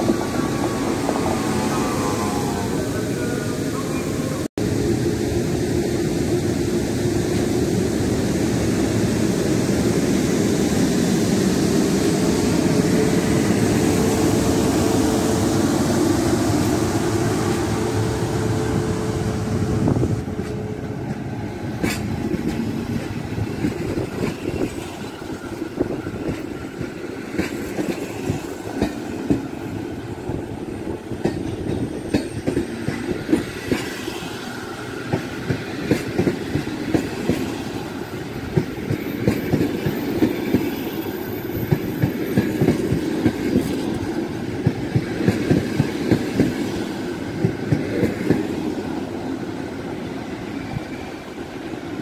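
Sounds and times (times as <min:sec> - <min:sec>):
electric locomotive rumble and hum: 0:00.0 - 0:51.8
train wheels clicking over rail joints: 0:20.4 - 0:25.1, 0:35.0 - 0:37.7, 0:38.5 - 0:46.8, 0:47.4 - 0:48.7.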